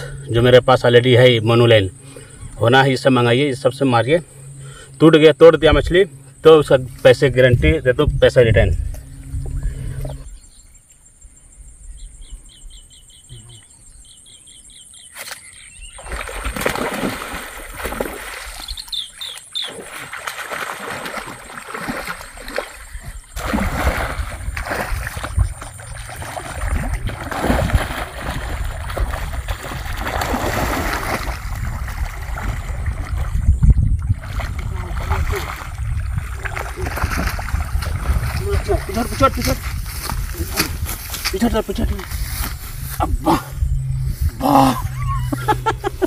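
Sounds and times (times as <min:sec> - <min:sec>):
fish splashing in shallow water: 0:15.2 - 0:41.4.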